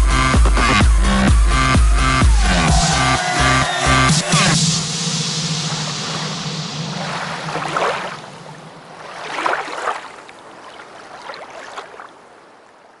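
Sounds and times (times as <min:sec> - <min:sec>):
dance music: 0:00.0 - 0:08.0
whoosh sound effects: 0:02.4 - 0:08.7.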